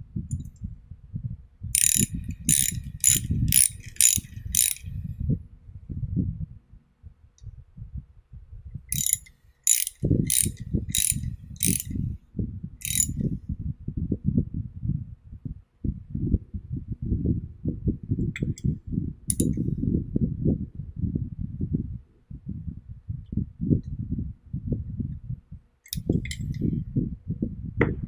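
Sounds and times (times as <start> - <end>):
ratchet clicking: 1.8 - 5.0, 8.9 - 12.0, 12.8 - 13.2, 19.3 - 19.6, 25.9 - 26.6.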